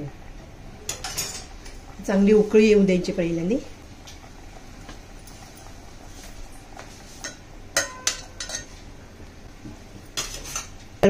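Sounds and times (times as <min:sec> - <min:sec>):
ladle clinking against metal pot: 0:07.2 - 0:08.7.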